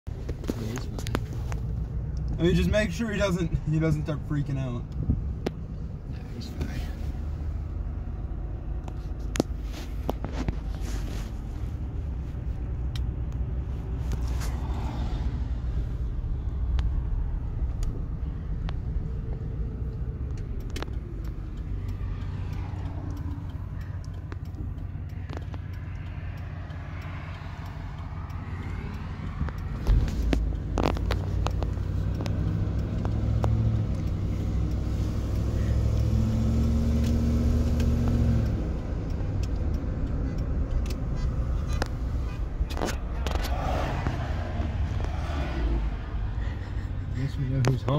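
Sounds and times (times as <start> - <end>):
car engine and road rumble: 0.0 - 47.9.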